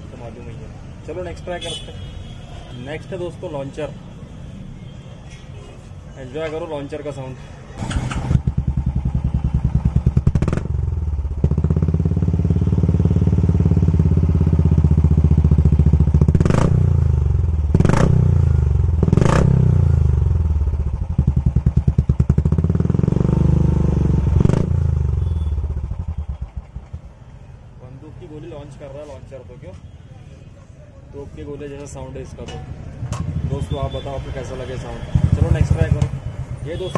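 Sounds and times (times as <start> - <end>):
exhaust cracks: 7.8 - 11.7
motorcycle engine revving: 7.8 - 27.0, 35.0 - 36.9.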